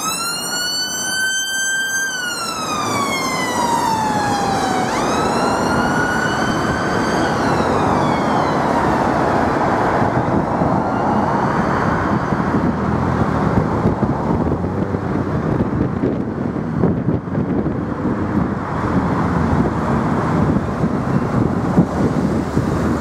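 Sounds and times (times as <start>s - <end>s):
ambulance siren wailing: 0.0s - 14.5s
traffic rumble: 0.0s - 23.0s.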